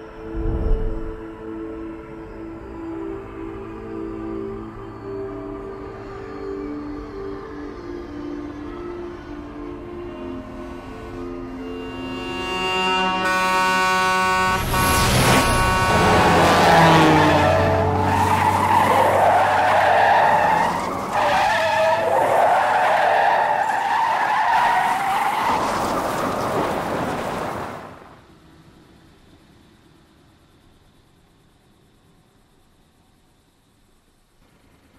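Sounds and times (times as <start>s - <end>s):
horn blaring: 10.7s - 24.2s
car tyres skidding: 14.4s - 28.2s.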